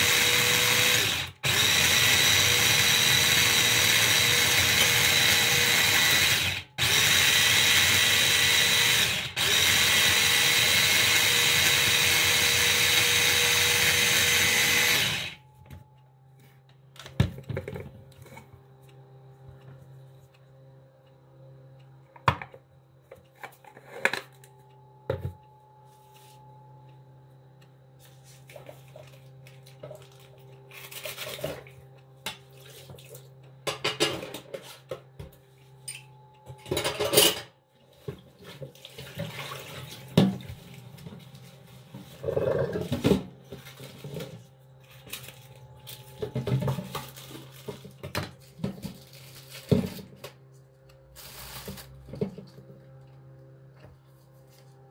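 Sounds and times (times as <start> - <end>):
electric food chopper running: 0.0 - 15.4.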